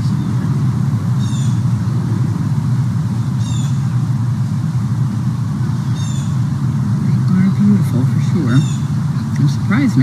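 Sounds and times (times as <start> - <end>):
low rumble: 0.0 - 10.0.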